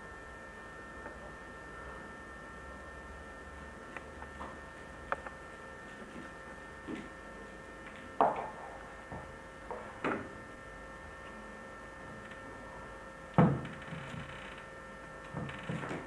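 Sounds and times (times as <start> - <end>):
steady electrical hum: 0.0 - 16.0.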